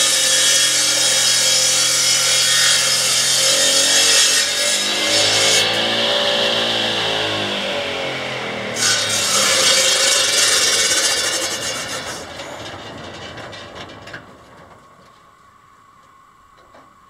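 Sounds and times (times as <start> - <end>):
bandsaw cutting through log: 0.0 - 12.4.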